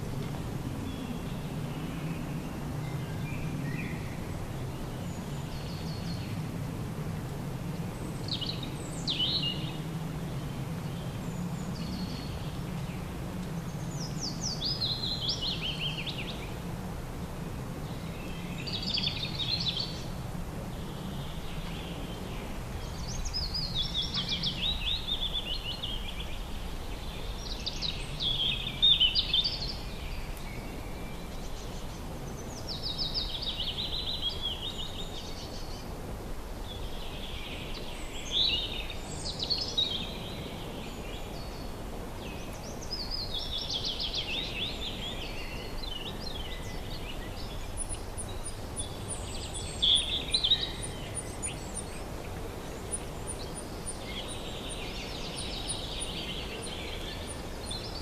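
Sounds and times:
birds chirping: 20.7s - 35.9s, 36.6s - 58.0s.

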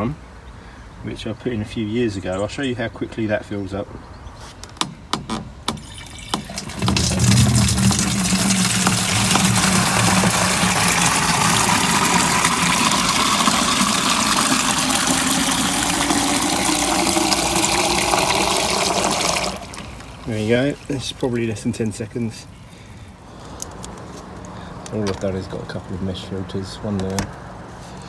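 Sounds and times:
water gushing into watering can: 5.8s - 22.7s.

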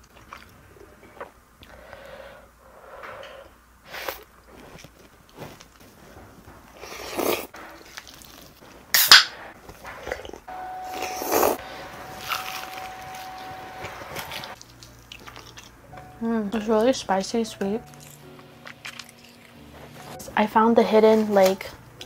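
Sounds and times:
slurping noodles: 1.2s - 4.9s, 6.8s - 7.5s.

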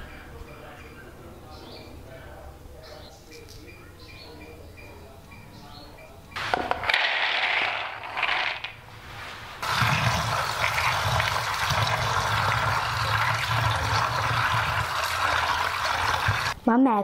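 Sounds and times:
dried seeds rattling: 6.8s - 8.8s
tap water running: 9.6s - 16.6s.

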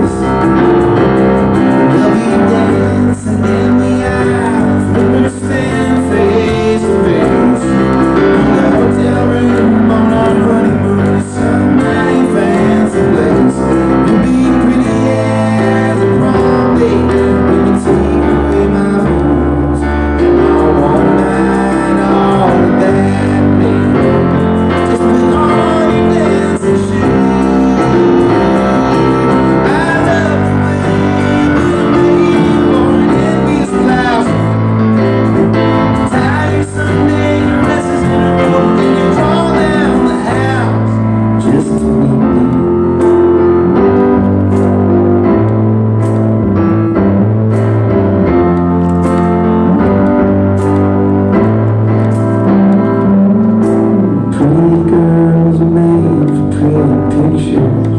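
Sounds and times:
acoustic guitar: 0.0s - 57.9s
drum kit: 0.0s - 57.9s
stage keyboard: 0.0s - 57.9s.

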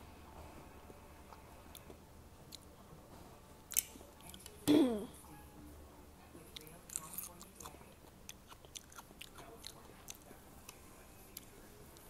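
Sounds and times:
person chewing food: 6.6s - 12.0s.

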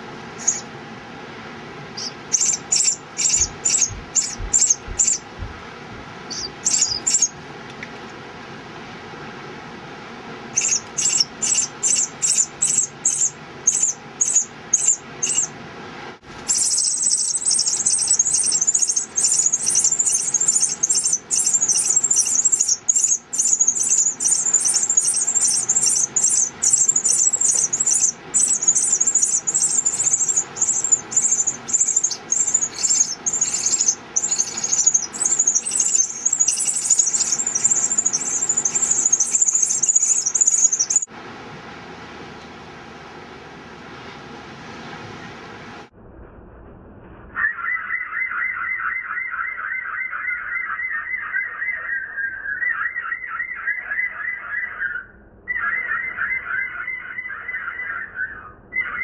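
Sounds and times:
nestlings squealing calls: 0.4s - 0.7s, 2.0s - 5.3s, 6.3s - 7.4s, 10.6s - 15.5s, 16.5s - 41.1s, 48.4s - 59.0s.

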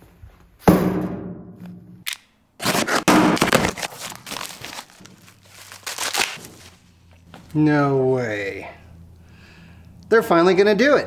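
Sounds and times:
packing wrap ripping: 2.1s - 6.8s
packing wrap crinkling and rustling: 2.6s - 7.3s.

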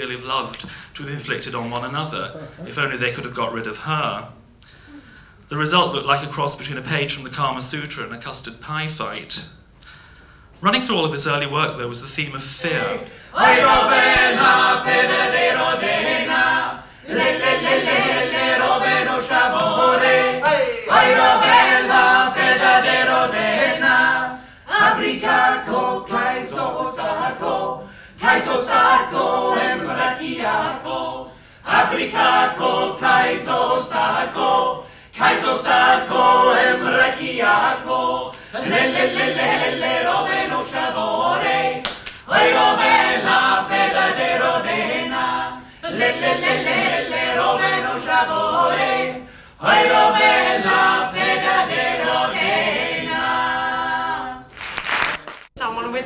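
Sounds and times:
group singing unaccompanied: 12.6s - 54.8s.

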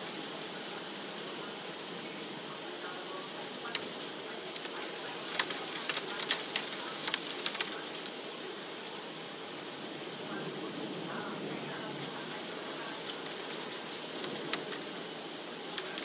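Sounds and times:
heavy rain falling: 0.0s - 16.0s
raindrops tapping hard surface: 3.0s - 9.0s, 12.0s - 16.0s.

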